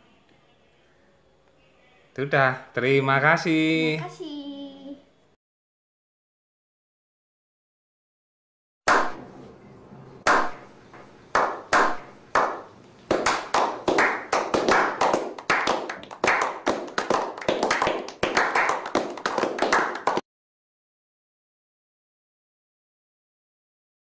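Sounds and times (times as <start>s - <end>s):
people clapping: 11.3s - 20.2s.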